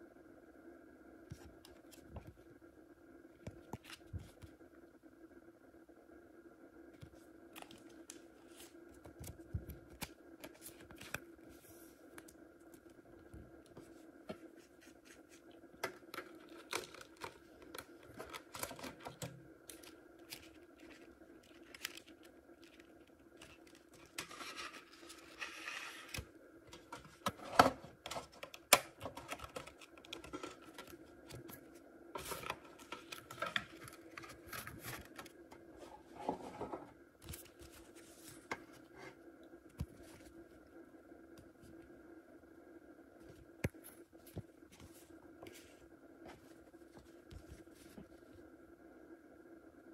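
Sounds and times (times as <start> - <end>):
faint steady hum: 0.0 - 49.9
cards rustling: 13.8 - 27.3, 28.0 - 35.4.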